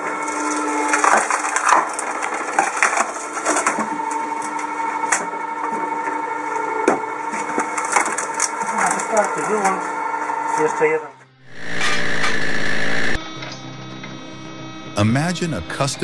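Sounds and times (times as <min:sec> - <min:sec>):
wood creaking and cracking: 0:00.0 - 0:10.6, 0:11.5 - 0:13.2
log splitter motor humming: 0:00.0 - 0:16.0.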